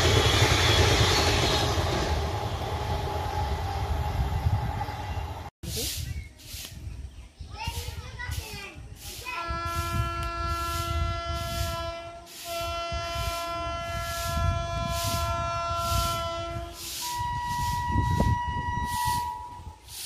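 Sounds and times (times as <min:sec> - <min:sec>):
locomotive horn blasts: 0:09.4 - 0:19.8.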